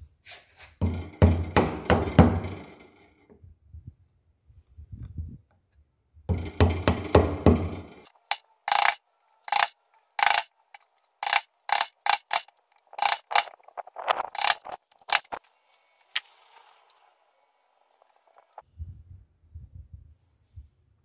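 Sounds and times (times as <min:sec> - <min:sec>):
chisel scraping wood: 0:08.7 - 0:10.5, 0:11.2 - 0:13.6, 0:14.2 - 0:15.4.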